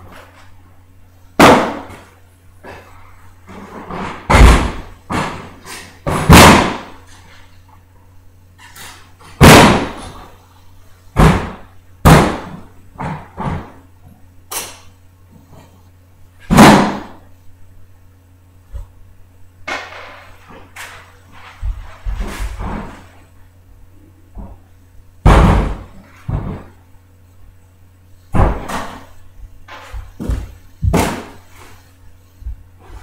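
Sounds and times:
steady low hum: 0.0s - 33.0s
loud bangs and thuds: 1.4s - 2.0s, 3.9s - 7.0s, 9.4s - 10.2s, 11.2s - 13.7s, 16.5s - 17.2s, 25.2s - 26.8s, 28.3s - 31.4s.

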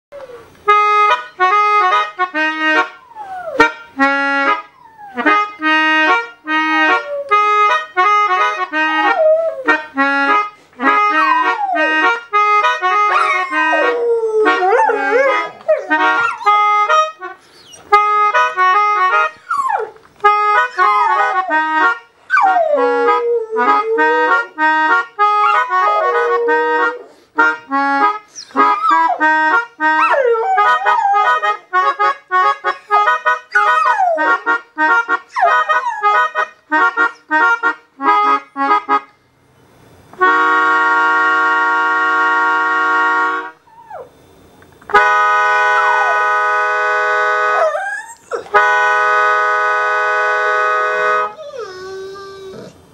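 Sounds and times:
melodica playing reggae chords: 0.4s - 52.7s
dog howling: 3.0s - 3.6s, 4.8s - 5.3s, 9.0s - 9.9s, 11.1s - 12.2s, 13.0s - 16.6s, 20.7s - 21.6s, 22.3s - 24.6s, 25.5s - 27.2s, 28.5s - 29.2s, 30.0s - 31.6s, 33.5s - 34.4s, 43.7s - 44.1s, 47.6s - 48.6s, 51.4s - 52.8s.

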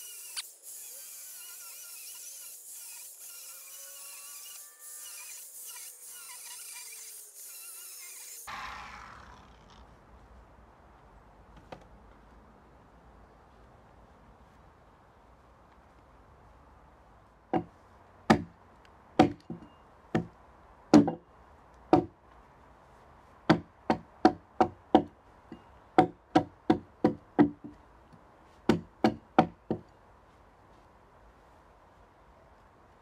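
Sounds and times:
axe chopping into a log: 18.3s - 18.5s.

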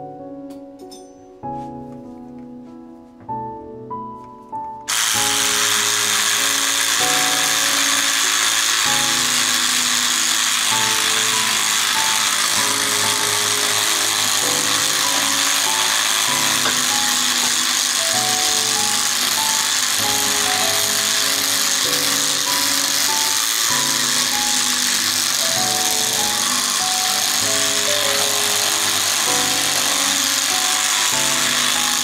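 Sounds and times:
electric scrubbing brush whirring: 4.9s - 32.0s.

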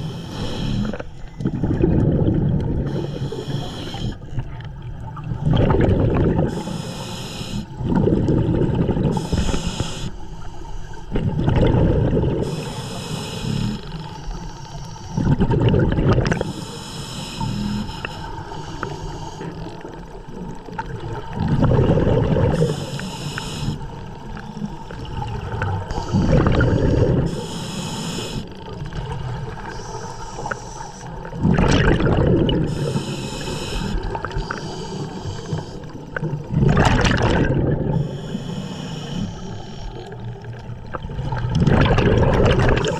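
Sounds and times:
regulator inhale hiss: 0.0s - 1.3s, 2.8s - 4.4s, 6.5s - 7.8s, 9.1s - 11.1s, 12.4s - 15.2s, 16.4s - 20.0s, 22.5s - 25.0s, 25.9s - 28.7s, 29.6s - 31.4s, 32.6s - 36.2s, 37.8s - 40.4s
exhaled bubbles rumbling: 0.8s - 6.7s, 7.7s - 9.8s, 11.0s - 12.7s, 15.0s - 16.6s, 19.5s - 23.0s, 23.8s - 27.5s, 28.5s - 38.4s, 39.4s - 42.9s.

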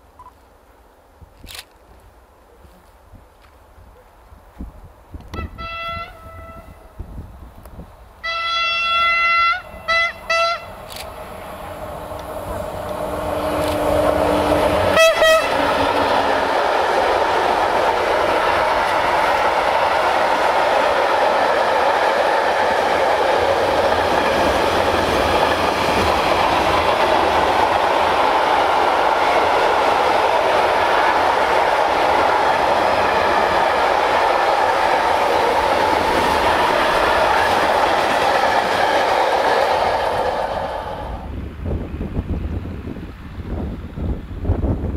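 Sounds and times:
locomotive horn blasts: 5.3s - 6.9s, 8.2s - 10.8s, 14.9s - 15.6s
freight train rumbling with clickety-clack: 8.8s - 44.9s.

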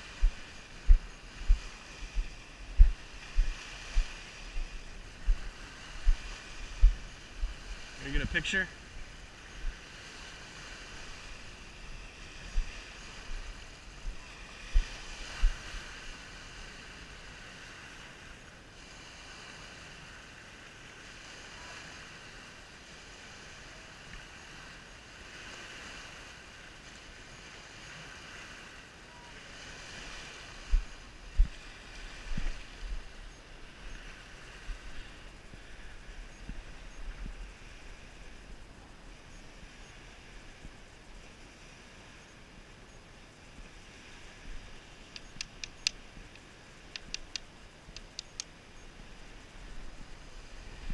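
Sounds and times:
waves lapping on sandy shore: 0.0s - 50.9s
low thumps on microphone: 0.2s - 7.5s, 30.7s - 31.6s.

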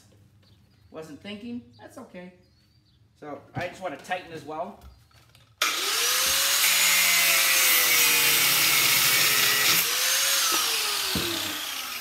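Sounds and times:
angle grinder cutting metal: 5.6s - 12.0s
grinder winding down: 5.6s - 12.0s.

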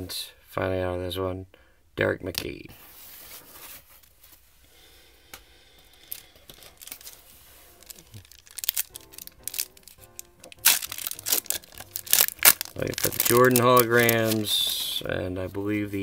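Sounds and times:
soft handling of cards: 2.4s - 4.6s, 5.4s - 16.0s
foil wrapper crackling and tearing: 6.0s - 15.0s
faint music: 6.7s - 16.0s.

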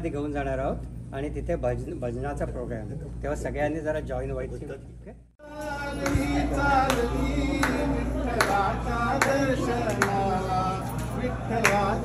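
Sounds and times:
voices singing together: 5.4s - 12.0s.

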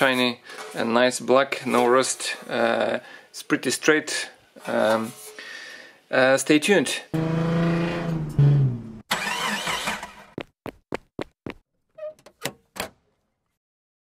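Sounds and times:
car engine starting and revving: 7.1s - 10.3s.

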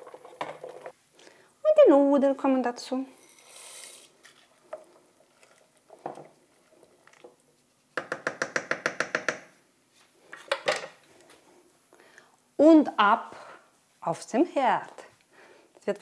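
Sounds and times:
noodles sliding into a pot: 3.2s - 4.6s
wooden spoon tapping metal pot: 8.0s - 9.6s.

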